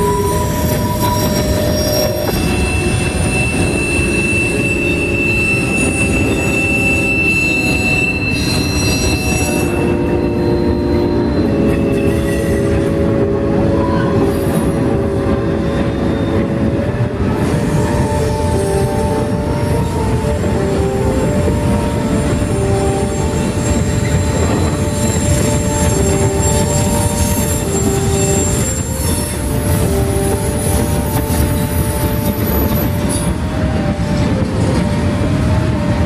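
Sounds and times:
high wheel squeal: 0:00.0 - 0:33.4
freight train cars rolling past: 0:00.0 - 0:36.0.

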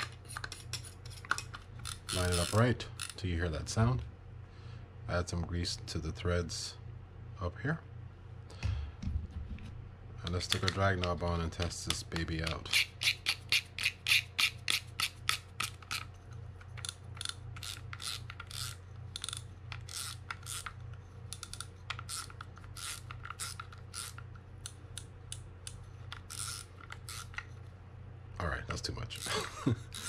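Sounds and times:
fishing reel drag clicking: 0:01.8 - 0:03.2, 0:16.8 - 0:20.8, 0:21.4 - 0:24.2, 0:26.2 - 0:27.5.

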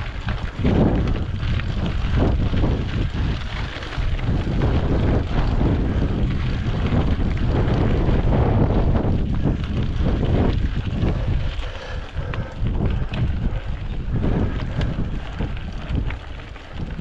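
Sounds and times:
bike knocks and rattles: 0:00.0 - 0:11.4
bike rumble: 0:00.0 - 0:17.0
wind buffeting microphone: 0:00.0 - 0:17.0.

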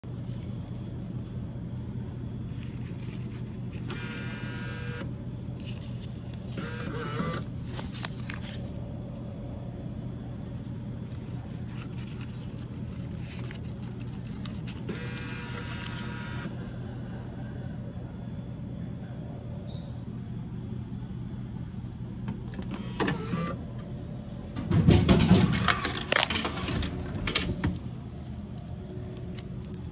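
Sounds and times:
steady low hum: 0:00.0 - 0:29.9
bill acceptor motor whirring: 0:03.7 - 0:05.2, 0:06.4 - 0:07.8, 0:11.7 - 0:16.6, 0:22.4 - 0:23.6.

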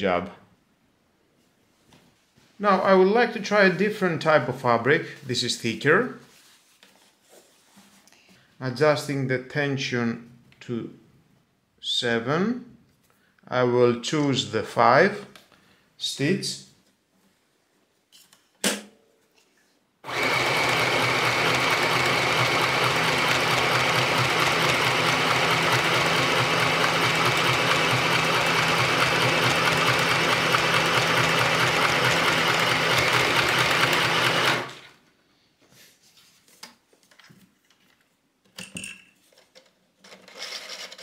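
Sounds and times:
sewing machine running: 0:20.0 - 0:35.0.

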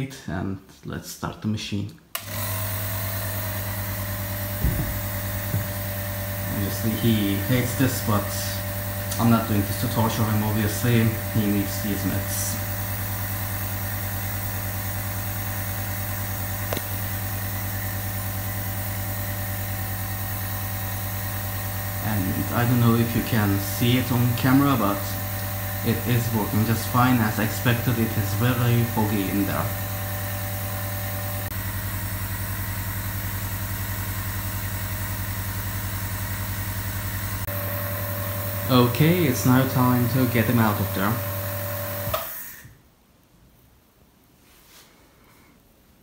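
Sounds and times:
compressor humming: 0:02.1 - 0:42.7.

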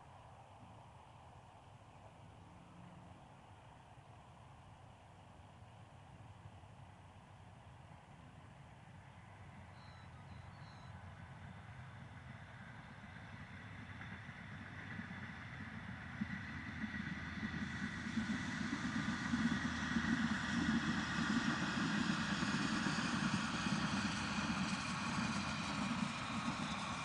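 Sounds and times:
diesel railcar approaching: 0:07.9 - 0:27.0.

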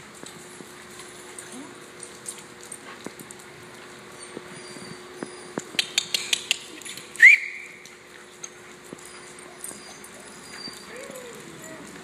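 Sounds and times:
dog claws clicking on hard floor: 0:05.6 - 0:07.2.

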